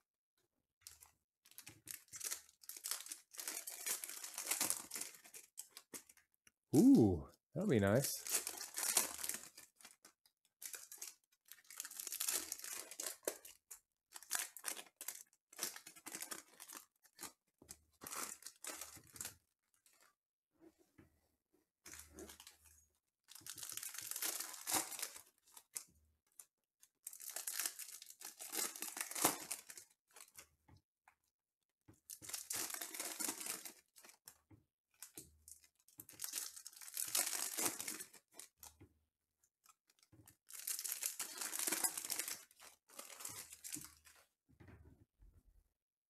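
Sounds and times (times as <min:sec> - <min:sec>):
foil wrappers tearing and crinkling: 0:01.5 - 0:06.0, 0:08.2 - 0:10.0, 0:10.6 - 0:17.3, 0:23.3 - 0:25.3, 0:27.1 - 0:30.3, 0:32.2 - 0:34.1, 0:36.0 - 0:38.5, 0:40.4 - 0:44.2.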